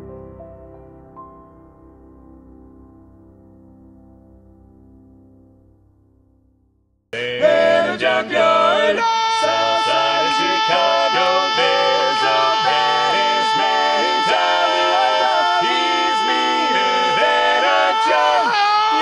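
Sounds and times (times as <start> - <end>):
soft piano music: 0.0 - 7.0
a cappella quartet singing: 7.2 - 19.0.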